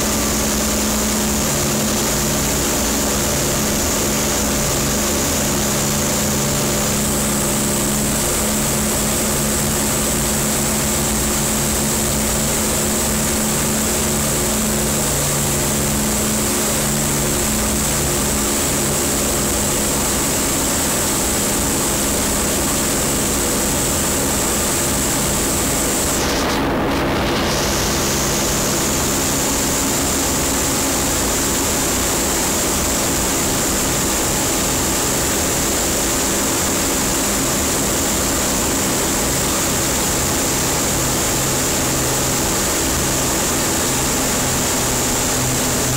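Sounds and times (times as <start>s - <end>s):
propeller aircraft engines droning: 0.0s - 45.9s.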